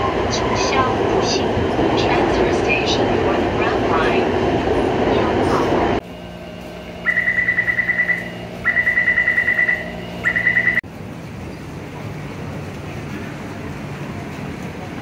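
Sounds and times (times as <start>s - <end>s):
station crowd noise: 0.0s - 15.0s
rapid electronic beeping: 7.0s - 10.8s.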